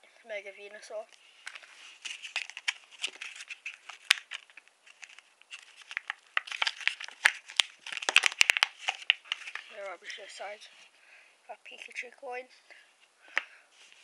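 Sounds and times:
plastic packaging crinkling: 0:01.4 - 0:10.4
plastic snapping: 0:03.9 - 0:09.6.

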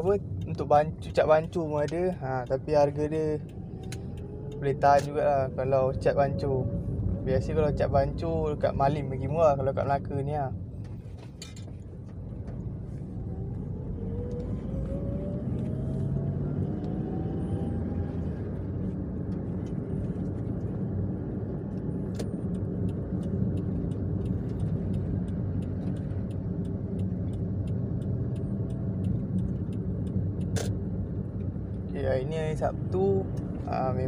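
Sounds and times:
light regular ticking: 0:00.0 - 0:06.3, 0:21.7 - 0:33.7
rising engine whine: 0:00.0 - 0:11.0, 0:12.0 - 0:34.0
car engine and road rumble: 0:00.0 - 0:34.0.

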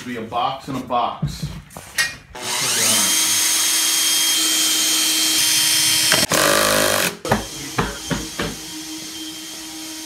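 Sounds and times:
cordless drill motor whining: 0:02.4 - 0:07.7.

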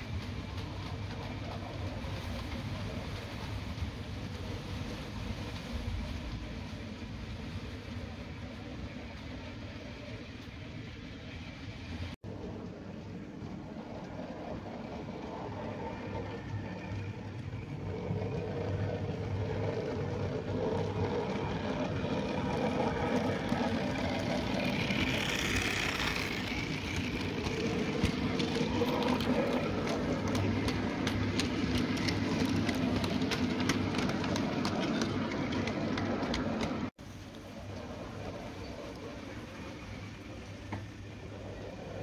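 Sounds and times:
wheels clicking over rail joints: 0:00.0 - 0:42.0
model train motor hum: 0:13.4 - 0:42.0.

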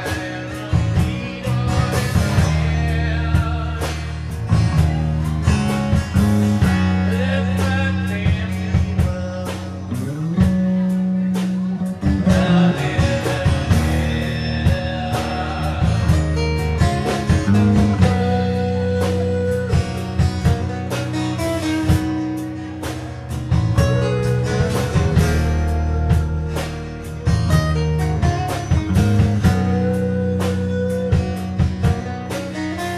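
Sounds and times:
person singing: 0:00.0 - 0:06.0, 0:06.6 - 0:32.9
electric bass: 0:00.0 - 0:32.9
strummed acoustic guitars: 0:00.0 - 0:32.9.

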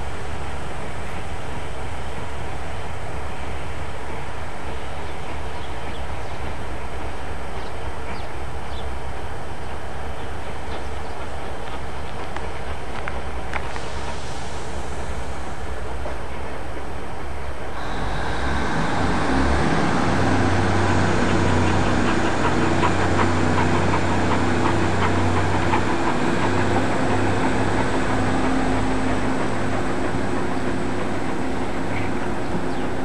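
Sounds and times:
steady low hum: 0:00.0 - 0:33.0
train wheels clicking over rail joints: 0:10.0 - 0:33.0.

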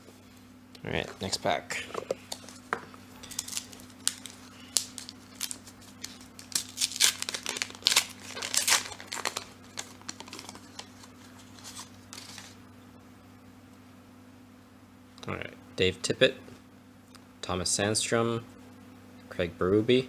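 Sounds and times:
foil wrapper tearing and crinkling: 0:03.3 - 0:12.6.

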